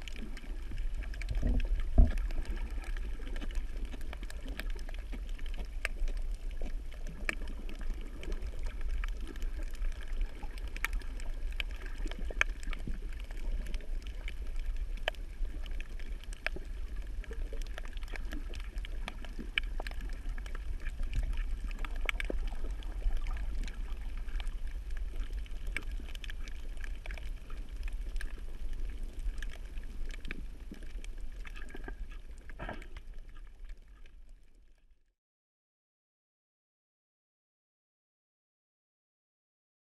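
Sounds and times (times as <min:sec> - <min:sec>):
underwater low rumble: 0:00.0 - 0:35.2
underwater sharp clicks: 0:17.6 - 0:27.3.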